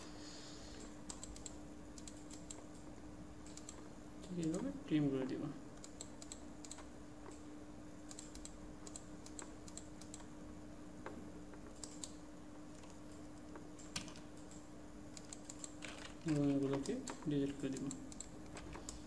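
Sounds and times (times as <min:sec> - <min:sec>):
faint steady hum: 0:00.0 - 0:19.0
keyboard and mouse clicks: 0:00.8 - 0:04.6, 0:05.8 - 0:07.5, 0:08.1 - 0:10.3, 0:11.0 - 0:19.0.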